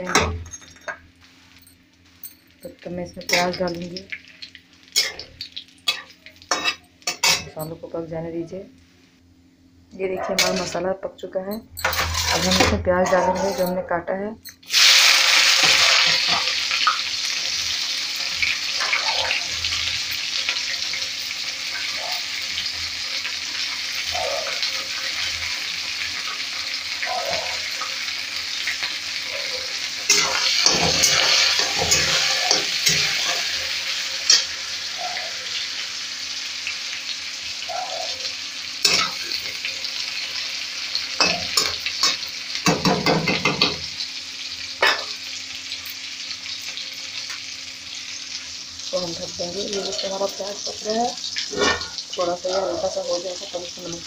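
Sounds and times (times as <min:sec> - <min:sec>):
onions sizzling in oil: 0:01.1 - 0:08.7, 0:14.5 - 0:54.0
steel spatula scraping pan: 0:11.8 - 0:13.8.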